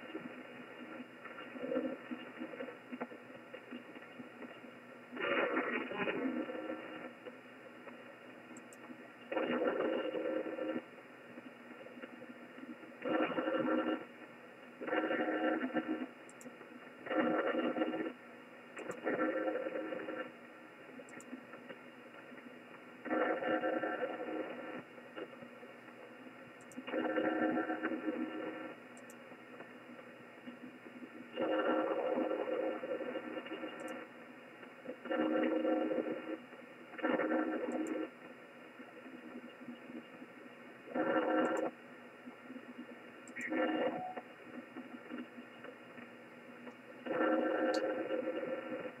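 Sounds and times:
radio receiver hiss: 0:00.0 - 0:49.0
raspy buzzing radio interference: 0:05.1 - 0:07.2, 0:09.3 - 0:10.9, 0:12.6 - 0:14.1, 0:14.8 - 0:16.1, 0:17.0 - 0:18.2, 0:19.0 - 0:20.4, 0:23.0 - 0:25.3, 0:26.8 - 0:28.8, 0:30.6 - 0:34.2, 0:34.9 - 0:36.4, 0:37.0 - 0:38.2, 0:38.9 - 0:45.4, 0:47.0 - 0:49.0
buzzy radio interference bursts: 0:05.2 - 0:07.1.

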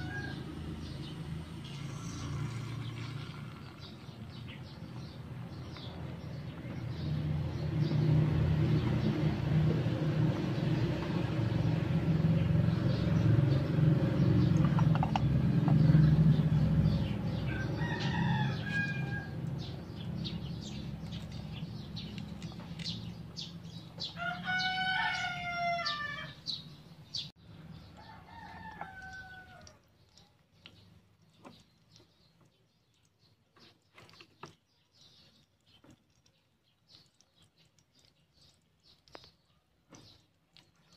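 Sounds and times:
rooster crowing: 0:00.0 - 0:00.8, 0:17.4 - 0:19.4, 0:24.2 - 0:26.4, 0:28.0 - 0:29.8
oil popping: 0:01.5 - 0:06.8, 0:08.9 - 0:17.8, 0:18.4 - 0:24.0.

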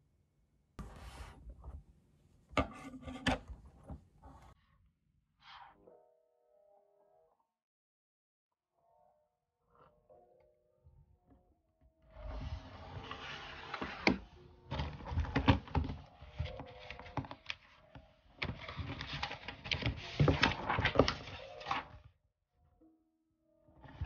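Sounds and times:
objects rustling and scraping: 0:00.8 - 0:01.8, 0:02.5 - 0:04.6.

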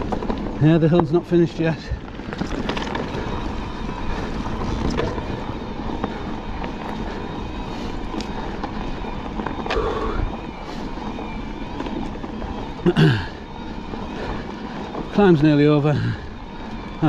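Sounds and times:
bike knocks and rattles: 0:00.0 - 0:17.0
faint motor whine: 0:00.0 - 0:17.0
tyres rolling on dirt: 0:00.0 - 0:17.0.

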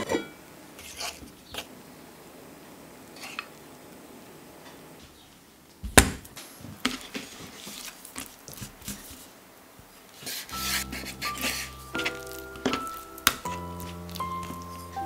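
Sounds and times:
knife tapping and scraping: 0:10.3 - 0:15.0.

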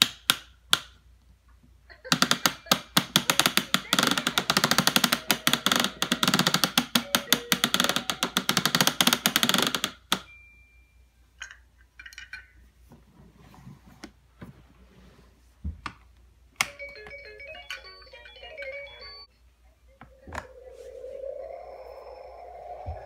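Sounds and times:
electronic toy tune: 0:06.9 - 0:08.5, 0:16.7 - 0:19.3.

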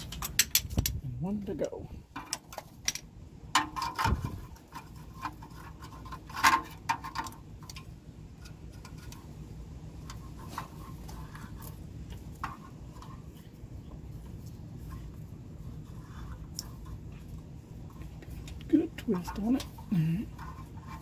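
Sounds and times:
pliers clicking and knocking: 0:00.0 - 0:01.0
steady low hum: 0:00.0 - 0:21.0.

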